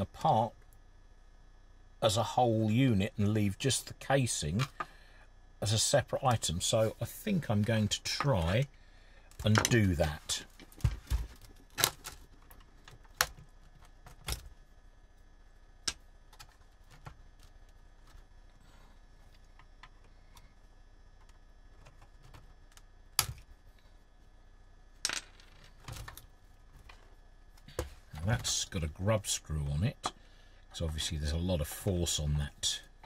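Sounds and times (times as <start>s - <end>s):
clicks and knocks handling plastic radio: 4.6s - 5.0s, 9.3s - 14.6s, 15.9s - 18.3s, 25.4s - 28.6s.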